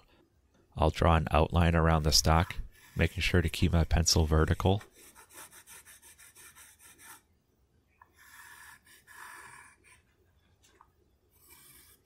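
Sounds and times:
pencil scratching on wood: 2.0 - 7.3, 8.0 - 10.2, 11.3 - 12.0.

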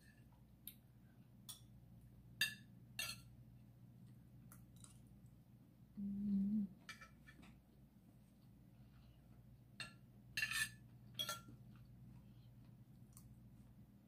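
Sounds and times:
closed-mouth humming while chewing: 3.6 - 9.8, 10.8 - 14.0
cutlery clicking on ceramic plate: 9.8 - 11.6.

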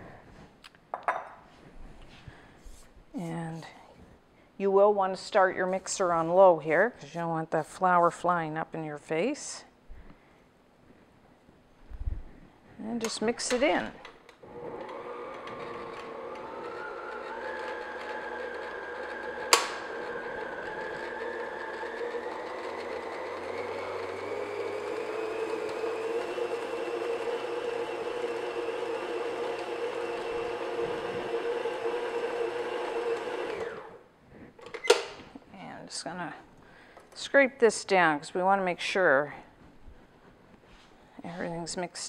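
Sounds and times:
electric stand mixer running: 14.4 - 34.0.

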